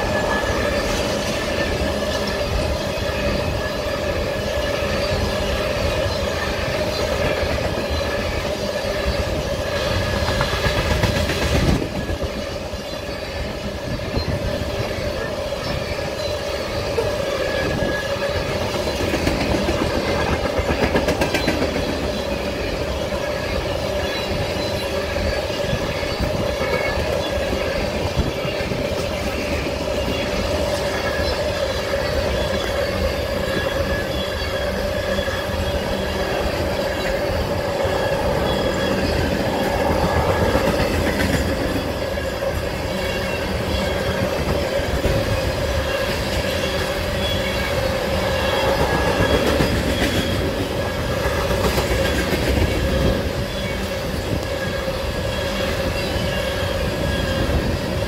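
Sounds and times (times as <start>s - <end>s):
freight train rumble: 0.0s - 58.0s
train wheels clicking on rail joints: 0.0s - 58.0s
steady whine: 24.9s - 51.7s.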